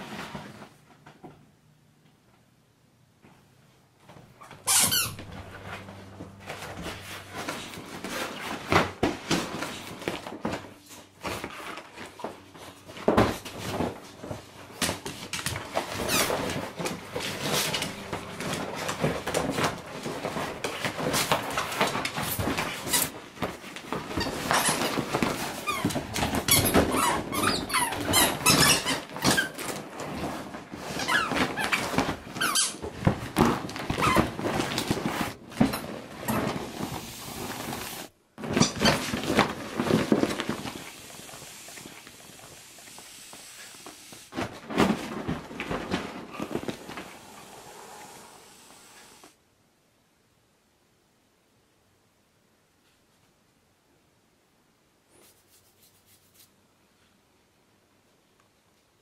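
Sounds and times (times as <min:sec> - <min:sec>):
inflatable vinyl squeaking: 0:04.4 - 0:14.8, 0:15.6 - 0:23.3, 0:23.9 - 0:47.9.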